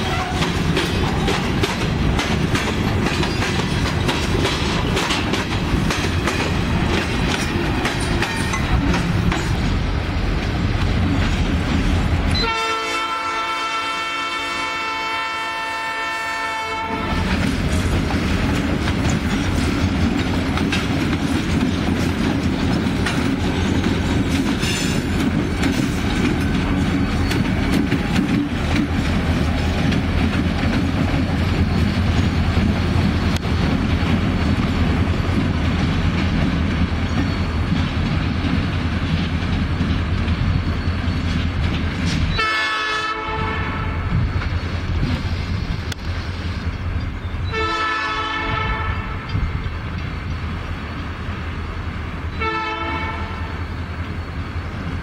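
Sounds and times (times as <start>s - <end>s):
train wheels clattering on rails: 0.0s - 13.9s, 16.5s - 55.0s
locomotive engines rumbling: 0.0s - 55.0s
locomotive air horn: 12.3s - 17.4s, 42.4s - 44.1s, 47.5s - 49.3s, 52.4s - 53.6s.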